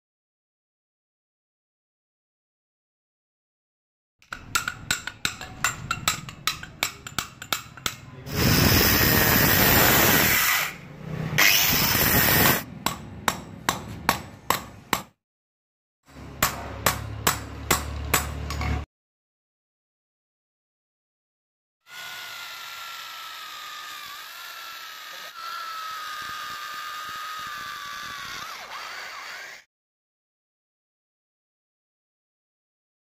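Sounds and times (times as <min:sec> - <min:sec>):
hammer tapping steel pin: 0:04.3 - 0:08.1
angle grinder cutting metal: 0:08.3 - 0:10.8, 0:11.4 - 0:12.6, 0:21.9 - 0:29.6.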